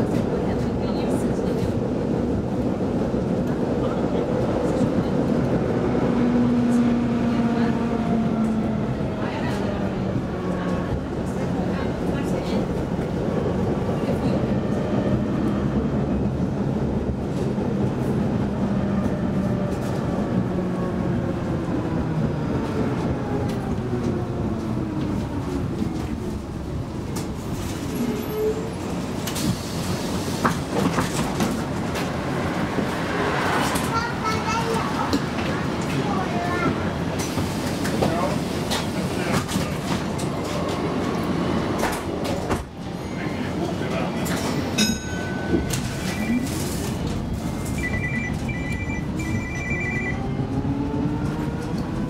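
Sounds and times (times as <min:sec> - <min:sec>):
tram wheels and motor rumbling: 0:00.0 - 0:52.0
electronic two-tone beep: 0:47.7 - 0:50.2.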